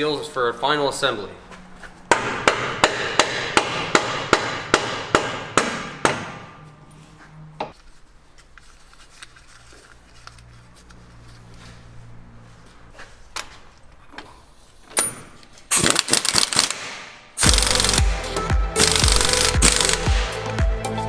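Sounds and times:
hammer striking metal: 0:02.1 - 0:06.6.

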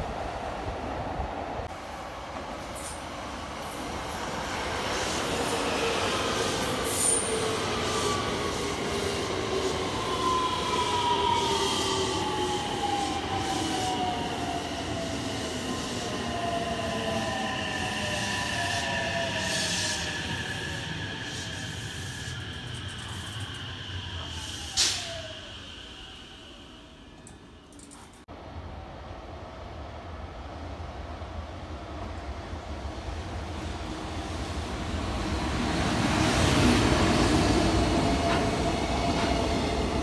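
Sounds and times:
train wheels rumbling on rails: 0:02.2 - 0:26.0, 0:32.1 - 0:40.0
train brake whine: 0:04.8 - 0:28.2.

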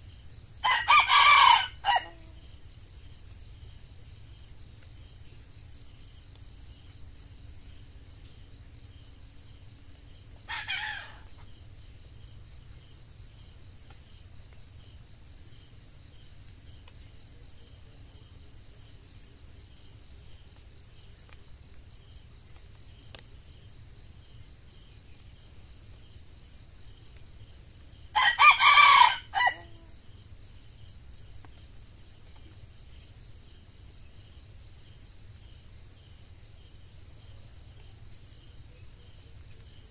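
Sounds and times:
crickets droning: 0:00.0 - 0:39.9
rooster crowing: 0:00.6 - 0:02.4, 0:10.5 - 0:11.3, 0:28.1 - 0:29.9.

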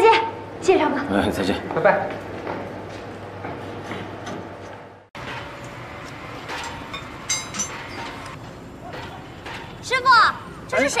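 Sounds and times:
metallic clinks of steel bars: 0:06.5 - 0:08.4.

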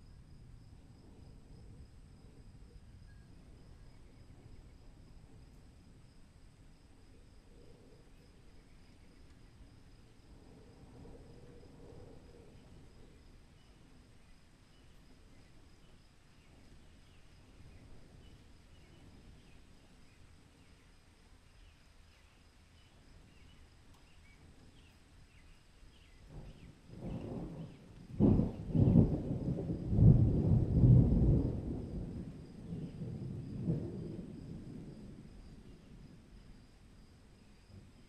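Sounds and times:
thunder rumbling and cracking: 0:26.2 - 0:36.4.

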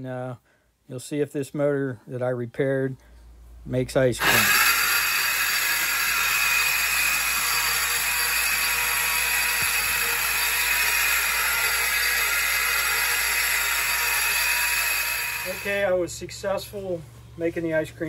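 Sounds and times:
ice cream freezer motor running: 0:04.2 - 0:16.0.

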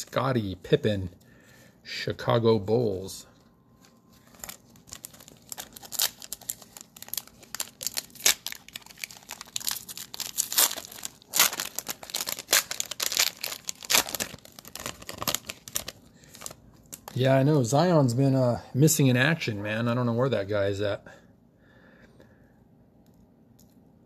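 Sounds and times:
plastic wrapper crinkling: 0:03.7 - 0:17.3.

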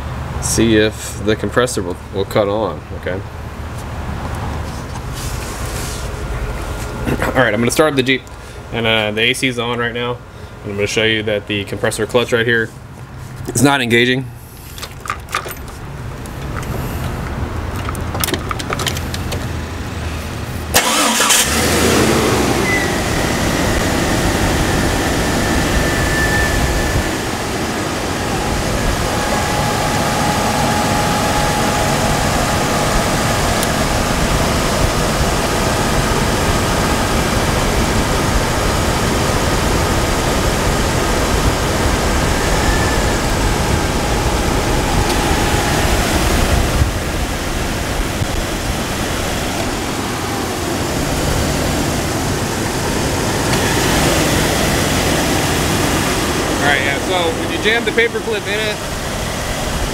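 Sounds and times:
car engine idling: 0:14.4 - 0:59.9
car engine starting: 0:14.5 - 0:59.9.

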